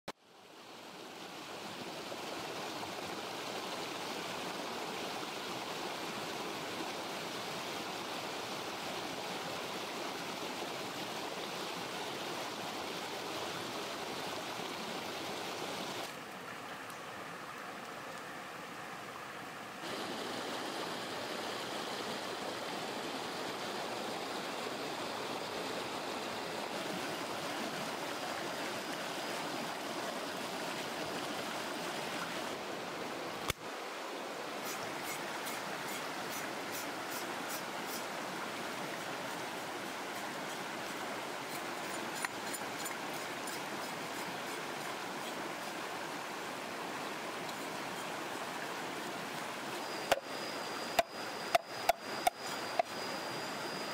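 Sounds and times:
river flowing over stones: 0:00.2 - 0:53.9.

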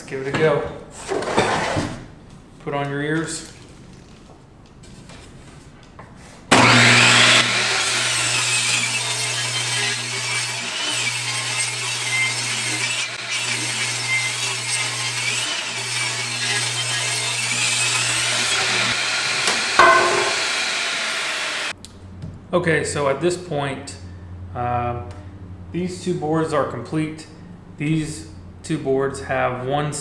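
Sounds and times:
saw motor hum: 0:06.5 - 0:21.7
table saw cutting wood: 0:06.5 - 0:21.7.

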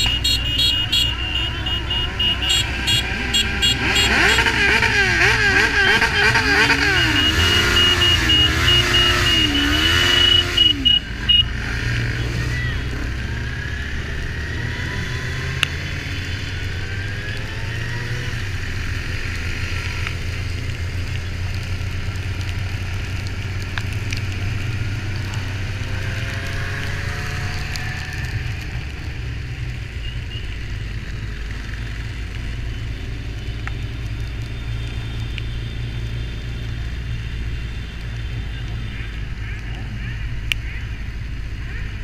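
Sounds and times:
motorcycle engines running: 0:00.0 - 0:42.0
wailing siren: 0:05.6 - 0:11.0.

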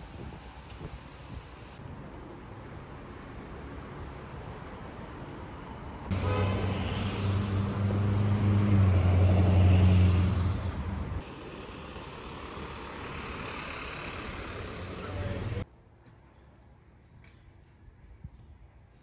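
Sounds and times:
quieter passing traffic: 0:00.0 - 0:19.0
vehicle engine hum: 0:01.5 - 0:15.7.

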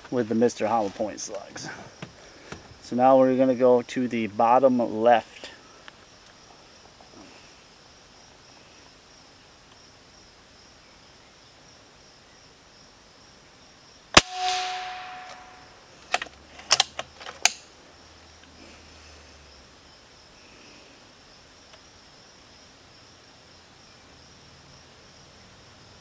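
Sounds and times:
insects buzzing: 0:00.0 - 0:26.0
air rifle shot: 0:14.2 - 0:15.8.

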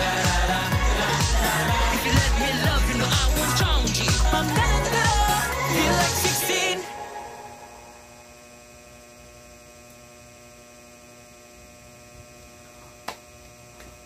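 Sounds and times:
pop song: 0:00.0 - 0:08.0
electrical hum: 0:00.0 - 0:14.0.

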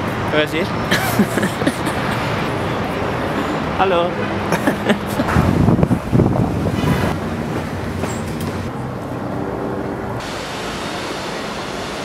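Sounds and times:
vehicle rumble: 0:00.0 - 0:12.0.

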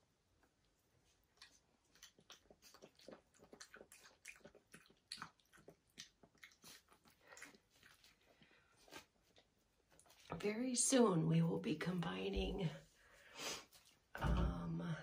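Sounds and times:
puppy chewing dry kibble: 0:01.1 - 0:10.2.

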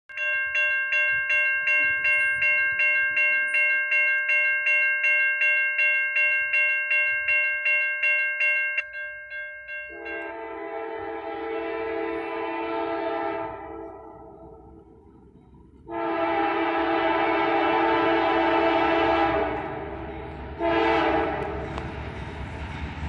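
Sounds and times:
railroad crossing bell ringing: 0:00.1 - 0:23.0
locomotive horn chord: 0:09.9 - 0:14.6, 0:15.8 - 0:21.8.

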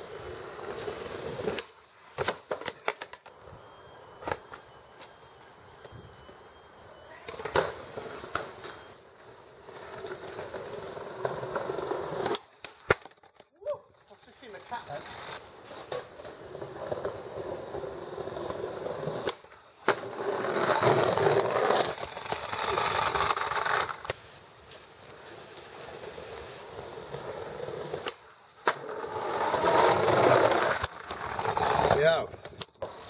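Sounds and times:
skateboard wheels rolling on paving: 0:00.0 - 0:33.0
skateboard clacking: 0:07.0 - 0:13.4, 0:25.1 - 0:33.0.

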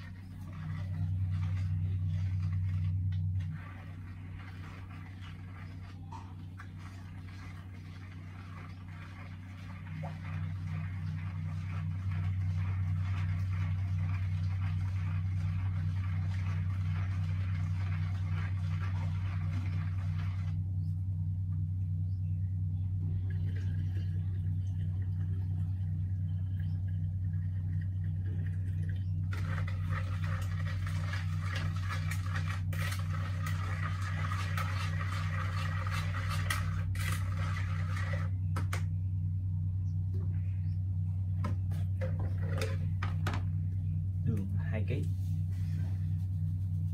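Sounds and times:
water pouring into jug: 0:00.0 - 0:20.6, 0:23.3 - 0:38.7
steady low hum: 0:00.0 - 0:46.9.

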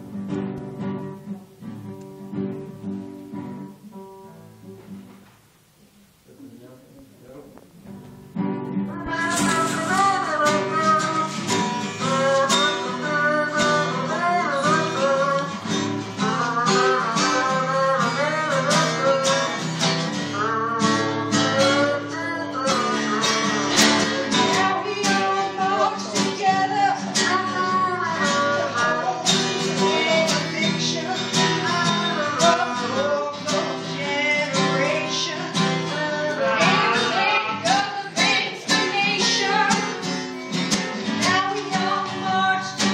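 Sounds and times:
acoustic guitar strumming: 0:00.0 - 0:05.5, 0:07.2 - 0:42.9
person singing: 0:08.8 - 0:42.9.

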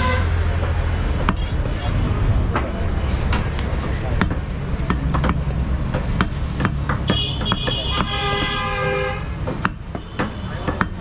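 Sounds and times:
vehicle horn: 0:00.0 - 0:00.4, 0:07.1 - 0:09.3
low traffic rumble: 0:00.0 - 0:11.0
cleaver chopping on wooden block: 0:04.2 - 0:08.6, 0:09.2 - 0:11.0.

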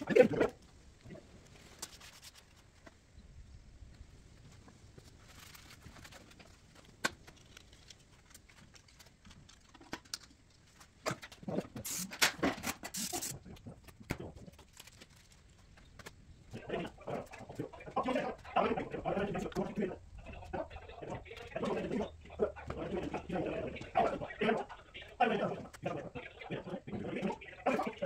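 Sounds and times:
aerosol spray can hissing: 0:11.8 - 0:12.2, 0:12.9 - 0:13.3.

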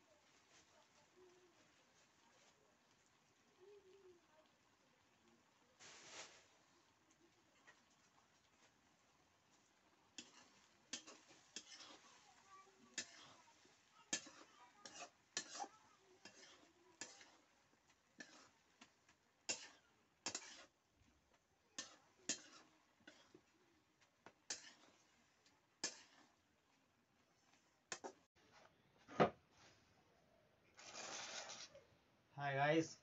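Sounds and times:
spatula scraping and knocking pan: 0:09.5 - 0:20.8, 0:21.8 - 0:26.4, 0:27.4 - 0:28.3.

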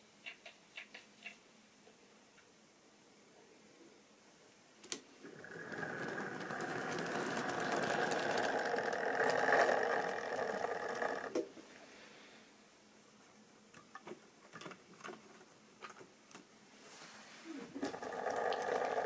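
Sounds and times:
model train motor whirring: 0:05.2 - 0:11.3, 0:17.8 - 0:19.0
wheels rattling over rails: 0:05.2 - 0:11.3.

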